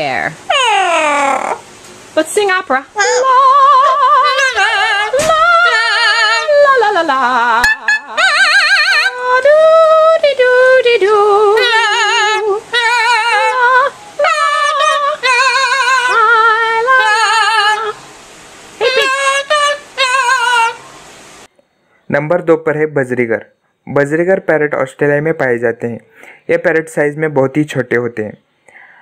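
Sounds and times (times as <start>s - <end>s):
parrot singing high notes: 2.9s - 10.2s, 11.1s - 18.0s, 18.8s - 20.8s.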